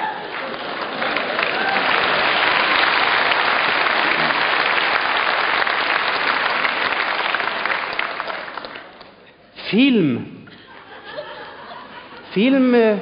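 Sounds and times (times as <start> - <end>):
large audience applauding: 0.0 - 9.1.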